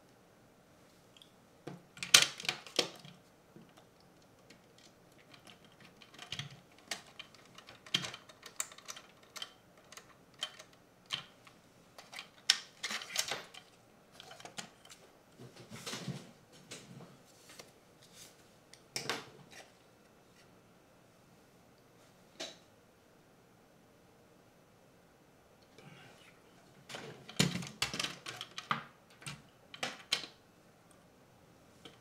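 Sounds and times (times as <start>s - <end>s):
plastic parts clicking and scraping: 1.7s - 15.0s, 26.9s - 30.4s.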